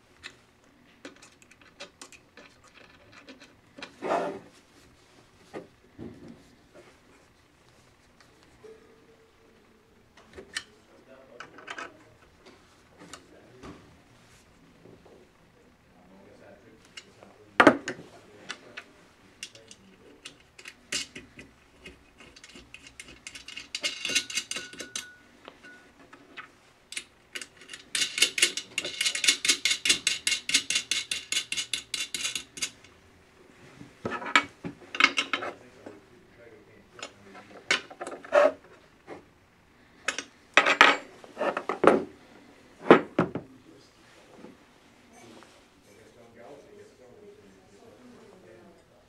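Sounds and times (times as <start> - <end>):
metal knocking and clinking: 19.4 - 25.8, 26.9 - 32.8, 34.2 - 35.5.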